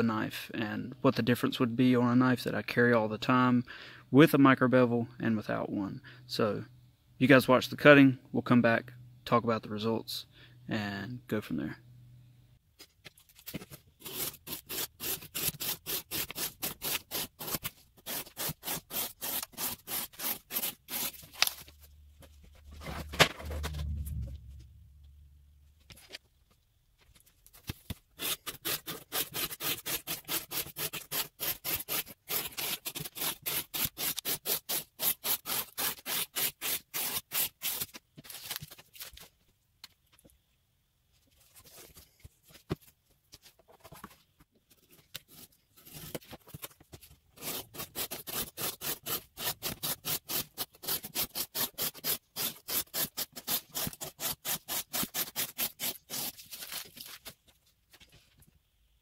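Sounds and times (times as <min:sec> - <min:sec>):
knife slicing cardboard: 0:13.5 - 0:21.7, 0:27.6 - 0:38.6, 0:47.4 - 0:57.1.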